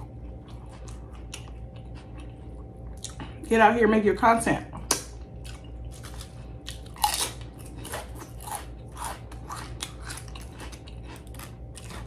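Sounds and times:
potato chips crunching: 0:04.9 - 0:12.0.

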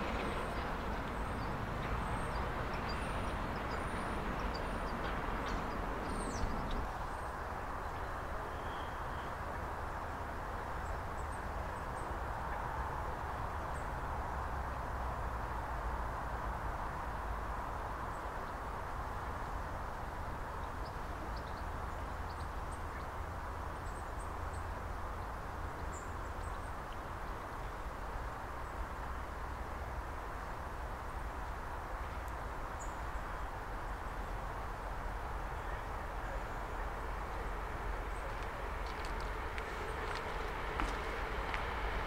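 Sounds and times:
outdoor rumble and hiss: 0:00.0 - 0:42.0
faint high bird chirps: 0:08.5 - 0:09.4.

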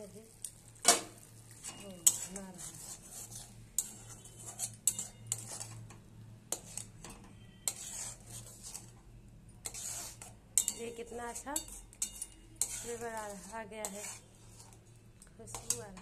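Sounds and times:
metal spoon scraping a pan: 0:00.5 - 0:16.0
spoon clinking against pan: 0:00.9 - 0:02.4, 0:03.8 - 0:05.8, 0:10.5 - 0:14.2, 0:15.5 - 0:16.0.

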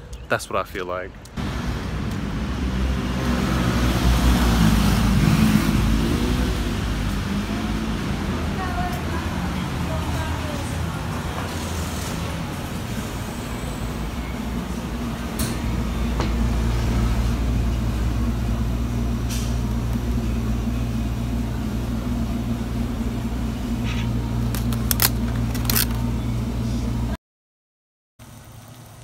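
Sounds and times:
display case hum: 0:19.8 - 0:27.1
plastic packs crackling: 0:24.4 - 0:26.1.

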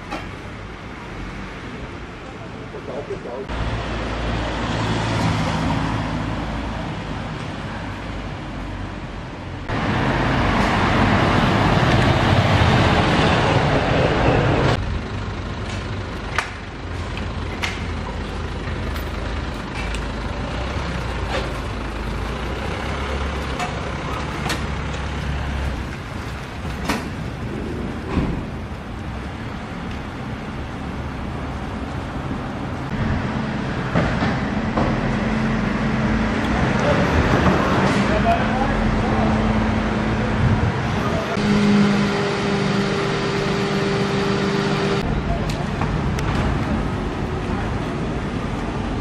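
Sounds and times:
city street traffic: 0:00.0 - 0:49.0.

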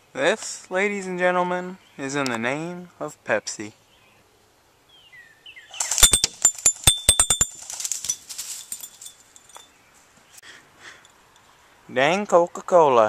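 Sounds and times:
bottle clattering: 0:05.9 - 0:09.6
bbs striking glass bottle: 0:05.9 - 0:09.7.

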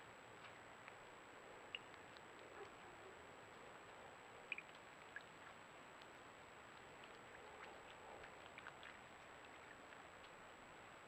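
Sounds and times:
deer wading through puddle: 0:00.2 - 0:11.0.

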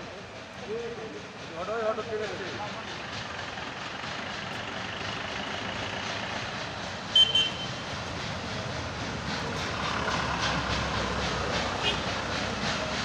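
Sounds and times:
road traffic engine noise: 0:00.0 - 0:13.0.

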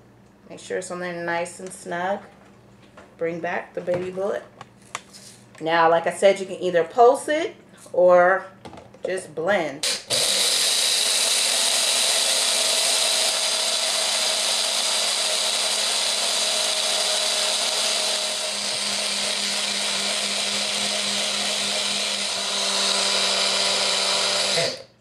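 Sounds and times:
blender motor whirring: 0:09.8 - 0:25.0.

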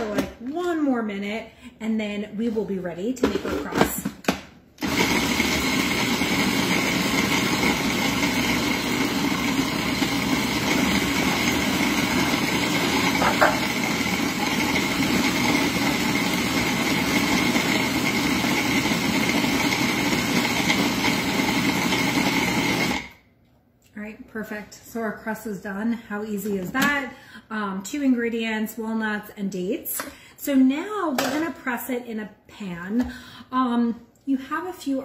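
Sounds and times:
food processor motor whining: 0:04.8 - 0:23.2.

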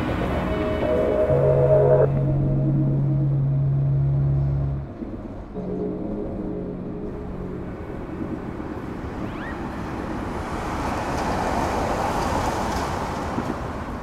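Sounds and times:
electronic rushing noise: 0:00.0 - 0:10.6.

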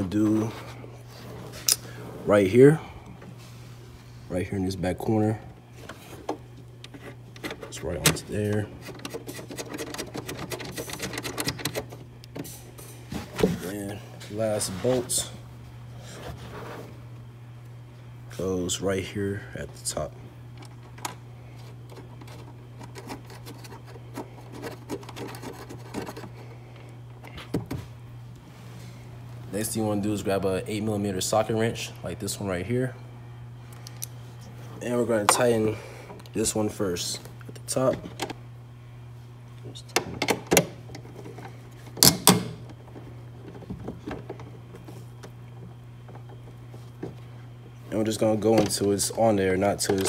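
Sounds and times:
steady low hum: 0:00.0 - 0:50.0
bolt scraping and ticking: 0:06.3 - 0:12.4.

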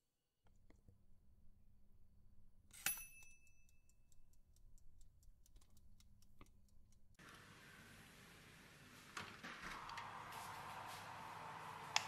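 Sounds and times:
metallic ping: 0:02.8 - 0:03.8.

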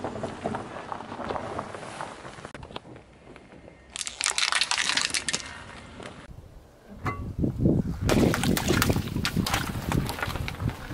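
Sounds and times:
water splashing: 0:04.0 - 0:05.8, 0:08.1 - 0:10.9.

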